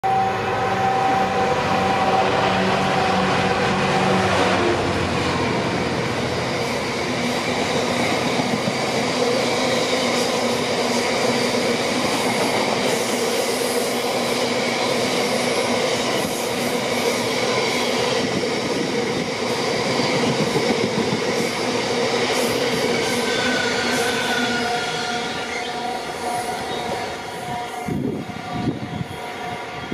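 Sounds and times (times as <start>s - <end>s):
locomotive engine droning: 0.0s - 9.5s.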